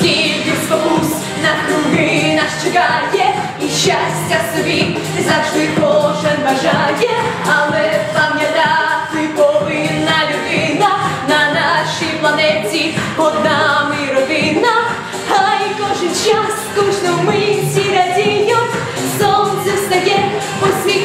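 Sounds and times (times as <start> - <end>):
backing music with steady beat: 0.0 - 21.0
girl singing: 0.0 - 21.0.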